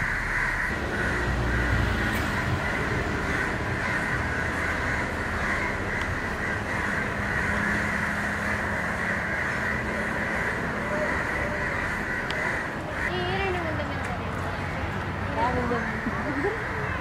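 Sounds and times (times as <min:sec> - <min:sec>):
high-pitched drone: 0:00.0 - 0:11.8.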